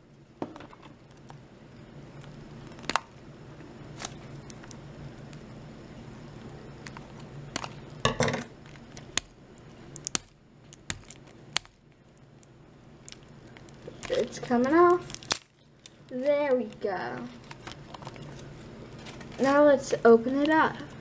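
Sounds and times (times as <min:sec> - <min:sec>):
steady low hum: 0:00.0 - 0:21.0
scissors snipping plastic: 0:14.0 - 0:15.5.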